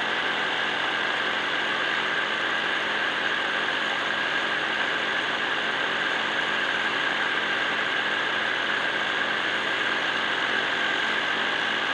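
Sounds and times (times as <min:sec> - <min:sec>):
propeller motor whine: 0:00.0 - 0:11.9.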